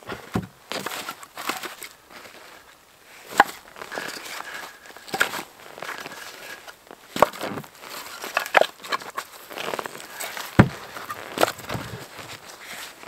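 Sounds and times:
firewood knocking together: 0.1 - 1.7, 10.4 - 12.0
footsteps crunching in snow: 0.1 - 13.0.

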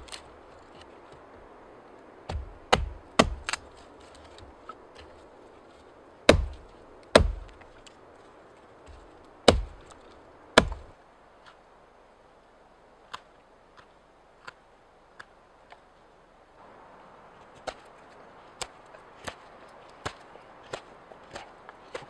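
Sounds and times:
axe chopping wood: 2.3 - 3.7, 6.3 - 7.7, 8.9 - 9.9, 10.6 - 10.9, 20.0 - 22.0.

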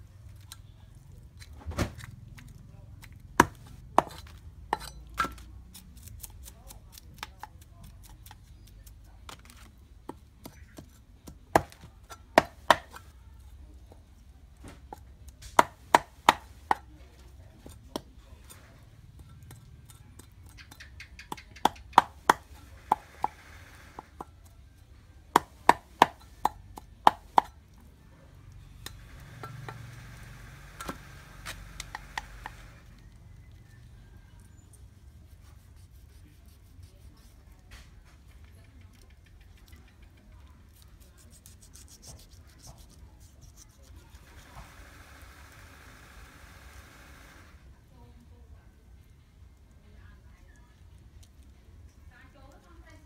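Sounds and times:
knife chopping on wooden board: 3.4 - 6.3, 10.1 - 13.0, 14.9 - 16.9, 25.4 - 27.6.

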